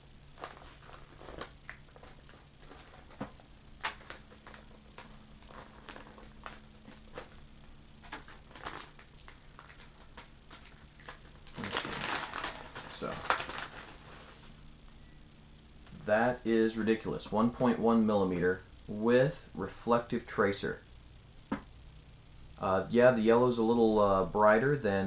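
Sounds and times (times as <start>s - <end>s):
plastic bag crinkling and rustling: 0.4s - 7.4s, 8.0s - 14.5s.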